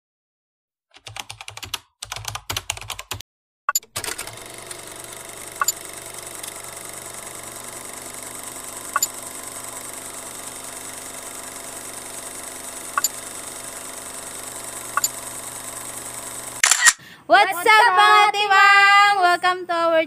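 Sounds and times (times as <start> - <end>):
keyboard typing: 0.9 - 17.0
sharp clicks: 5.5 - 6.6, 8.9 - 9.2, 12.8 - 13.3, 14.8 - 15.3, 16.1 - 17.0.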